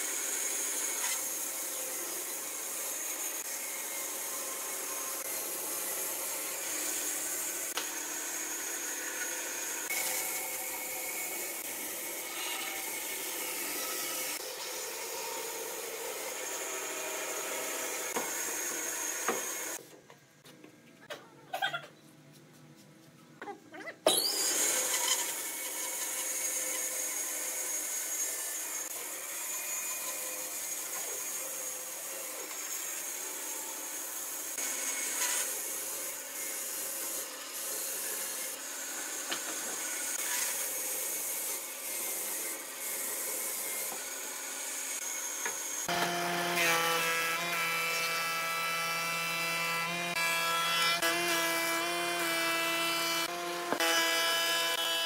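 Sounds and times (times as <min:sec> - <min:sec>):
wood cutting or sanding: 0:00.0 - 0:19.8, 0:24.2 - 0:55.0
power tool whining: 0:24.1 - 0:31.3.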